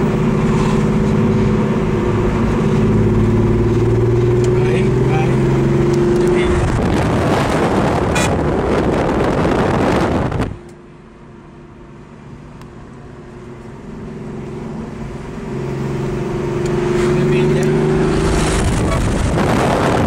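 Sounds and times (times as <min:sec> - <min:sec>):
steady engine drone: 0:00.0 - 0:20.0
wind and road noise: 0:00.0 - 0:20.0.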